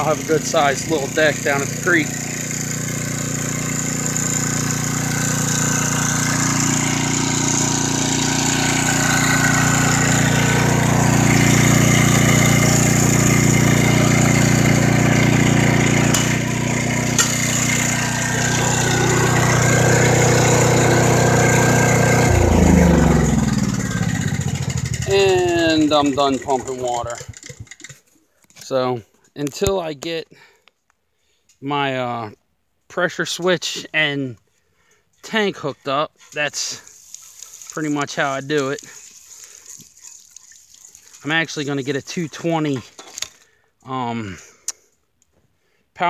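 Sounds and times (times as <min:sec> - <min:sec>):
generator engine running: 0:00.0 - 0:27.9.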